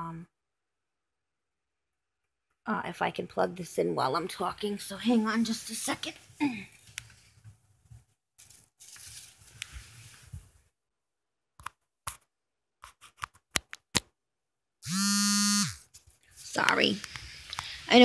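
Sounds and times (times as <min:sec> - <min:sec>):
phone rustling in hand: 0:06.2 - 0:10.6
buzzy electronic phone alert: 0:14.8 - 0:15.8.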